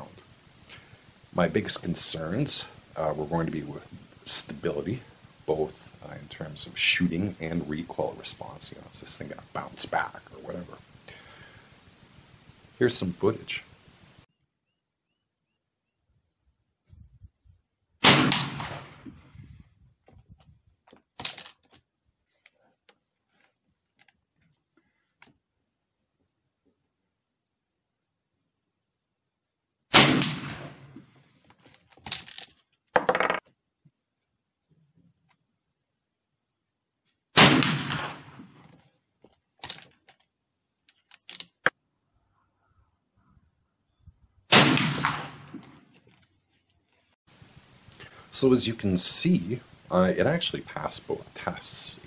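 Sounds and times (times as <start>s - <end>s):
rifle shot: 18.0s - 19.1s, 29.9s - 30.9s, 37.4s - 38.6s, 44.5s - 45.8s.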